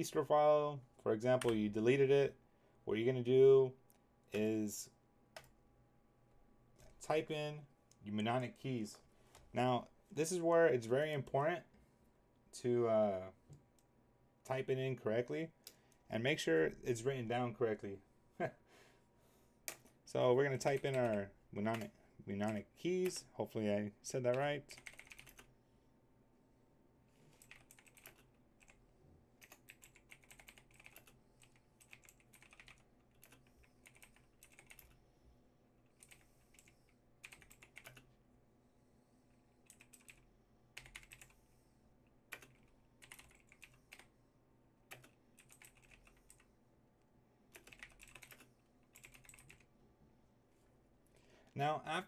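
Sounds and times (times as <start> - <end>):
faint computer keyboard typing: 1.3 - 1.6, 5.3 - 5.6, 19.6 - 19.9, 20.5 - 23.3, 24.2 - 25.5, 27.3 - 28.8, 29.4 - 35.0, 35.8 - 38.1, 39.6 - 41.4, 42.3 - 44.1, 44.9 - 46.5, 47.5 - 49.7.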